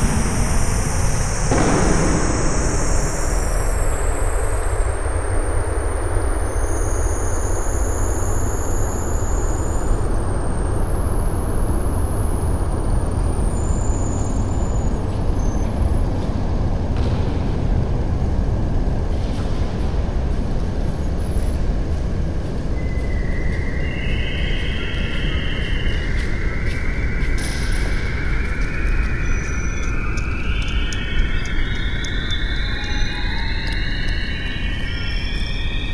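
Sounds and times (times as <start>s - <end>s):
dense rumbling noise: 0.0s - 4.8s.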